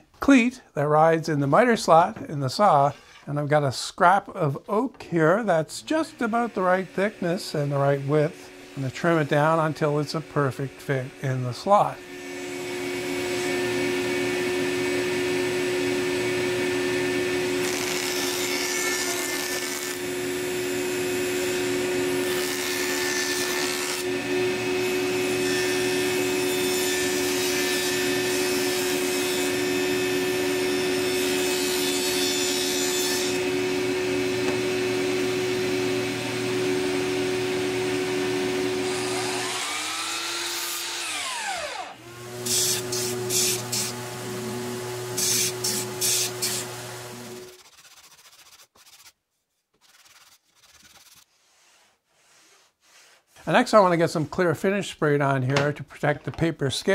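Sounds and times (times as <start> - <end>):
table saw running: 5.8 - 47.6
saw blade rasping through wood: 17.6 - 20.2, 21.2 - 33.5, 38.8 - 48.4
saw blade winding down: 38.8 - 47.6.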